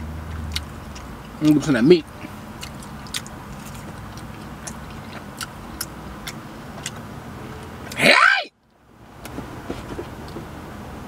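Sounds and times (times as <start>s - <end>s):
person chewing food: 0.3s - 1.4s, 2.1s - 8.0s.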